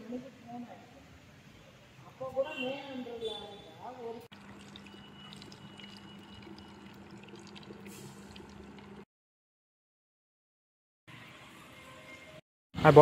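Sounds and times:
water pouring into plastic bottle: 4.3s - 9.0s.

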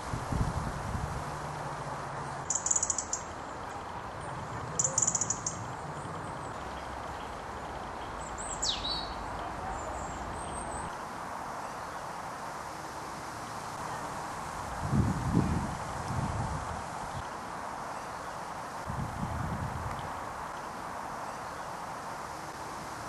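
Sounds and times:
wind rustling leaves: 0.0s - 23.0s
small birds chirping: 2.2s - 11.0s.

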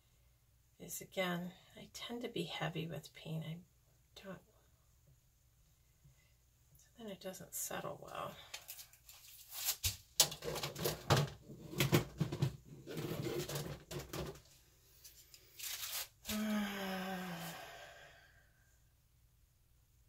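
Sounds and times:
woman humming: 16.3s - 17.9s.

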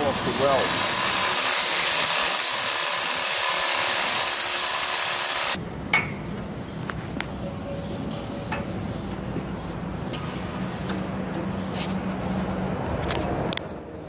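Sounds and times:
power grinder grinding steel: 0.0s - 5.6s.

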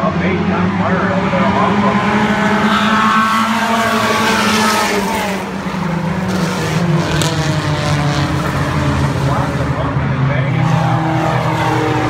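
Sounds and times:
drone of race car engines: 0.0s - 12.0s
race cars passing by: 0.0s - 12.0s.

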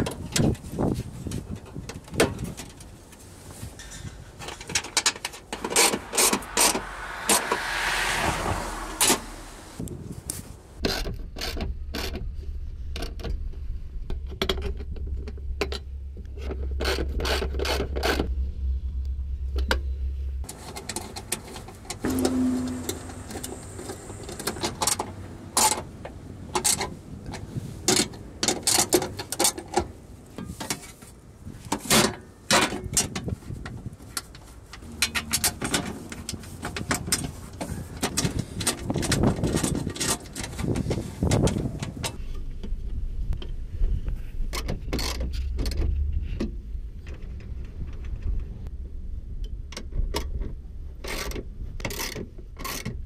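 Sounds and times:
low steady hum: 12.5s - 24.6s, 34.8s - 37.4s.

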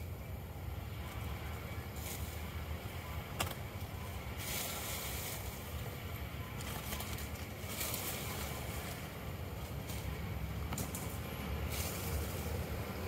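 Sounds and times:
hiss: 4.4s - 5.8s, 11.1s - 13.0s.

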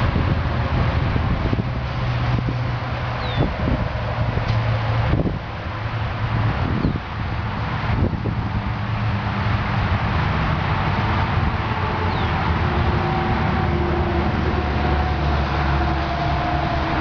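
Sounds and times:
low vehicle engine rumble: 0.0s - 17.0s.

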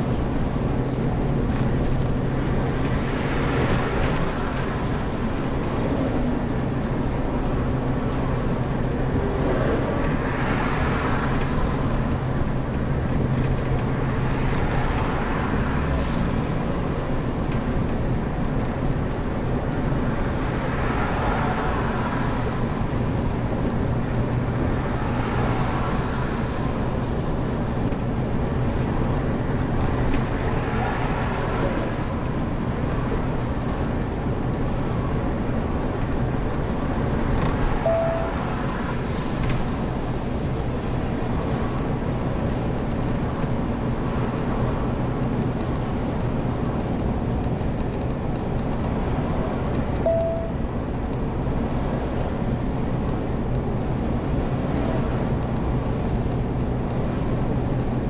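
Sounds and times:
motorhome engine hum: 0.0s - 58.0s
road noise: 0.0s - 58.0s
short beep: 37.9s - 38.5s, 50.1s - 50.6s.

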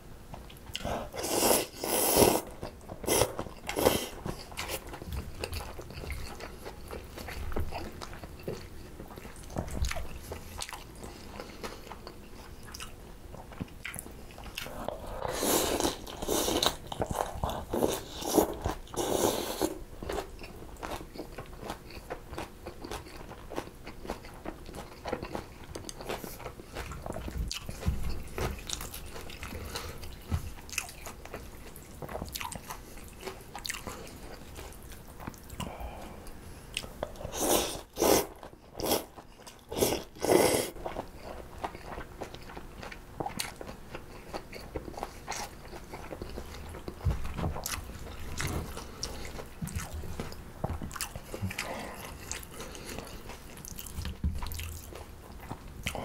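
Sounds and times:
crunchy chewing: 0.3s - 56.0s
slurping noodles and broth: 0.8s - 4.8s, 14.6s - 19.8s, 37.2s - 39.1s, 39.7s - 40.8s.

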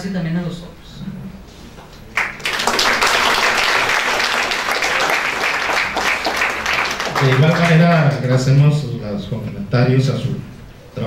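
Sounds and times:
audience applauding: 2.1s - 8.2s.

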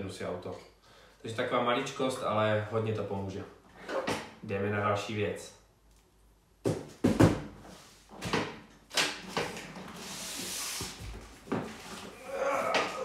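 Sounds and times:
knocks and thuds: 6.6s - 7.5s.

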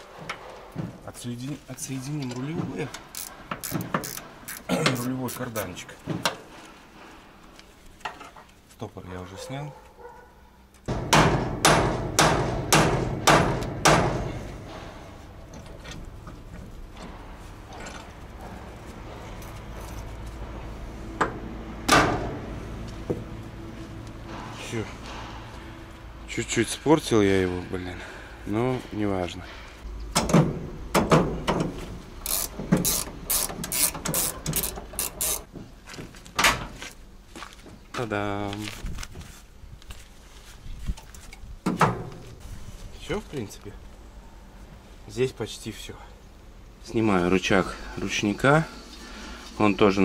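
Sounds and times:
loud metal knock: 10.9s - 15.0s
metallic clicking of hand tools: 32.2s - 35.5s.

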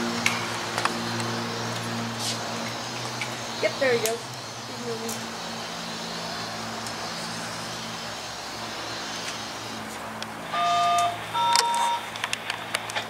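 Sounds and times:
diesel locomotive running: 0.0s - 13.0s
locomotive horn blasts: 10.5s - 12.1s.

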